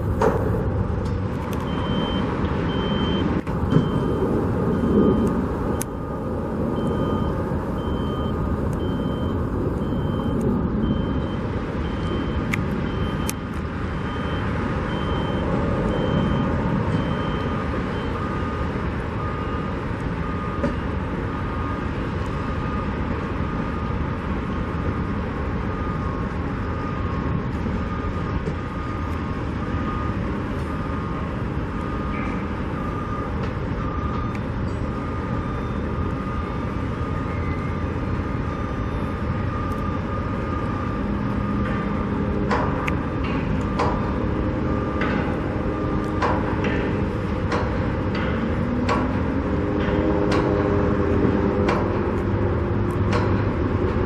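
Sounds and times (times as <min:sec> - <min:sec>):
rumble of engines and traffic: 0:00.0 - 0:54.0
backup alarms beeping: 0:01.5 - 0:51.8
high-pitched alarm: 0:01.7 - 0:21.9.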